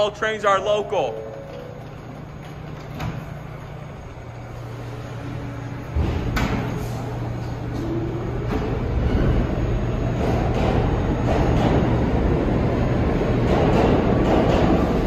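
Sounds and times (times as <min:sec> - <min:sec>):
subway train rumble: 0:00.0 - 0:15.0
sharp clicks and knocks: 0:13.4 - 0:15.0.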